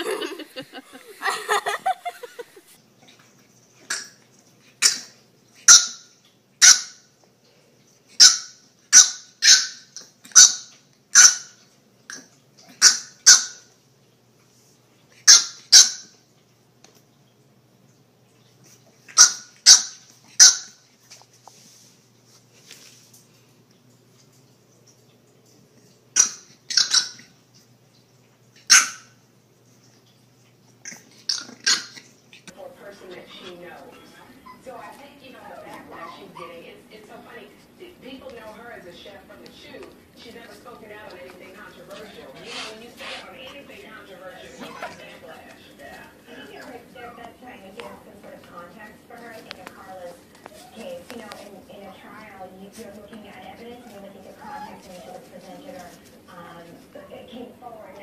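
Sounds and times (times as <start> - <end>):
puppy yapping: 28.7 - 29.2, 33.1 - 36.6, 53.8 - 55.3.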